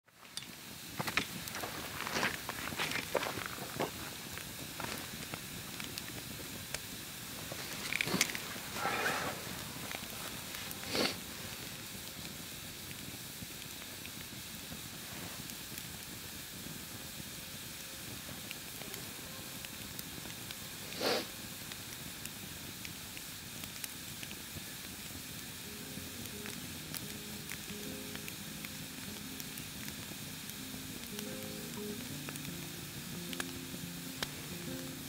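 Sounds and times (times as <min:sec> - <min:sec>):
campfire hissing and crackling: 0:00.1 - 0:35.0.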